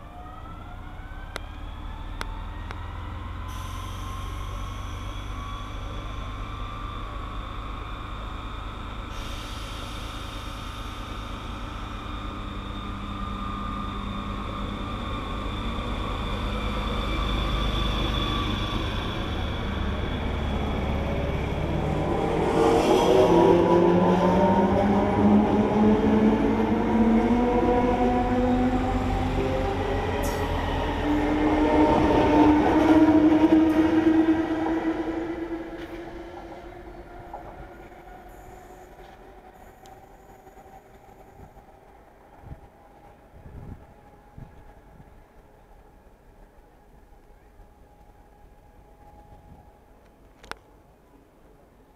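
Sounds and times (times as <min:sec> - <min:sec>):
low train rumble: 0:00.0 - 0:51.9
electric train motors whining: 0:03.3 - 0:39.2.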